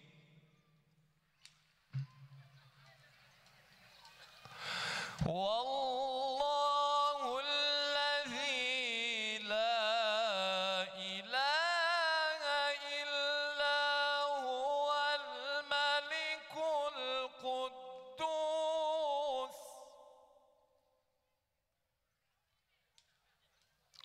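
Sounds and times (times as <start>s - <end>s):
man reciting melodically: 0.0s - 0.4s, 5.1s - 20.4s.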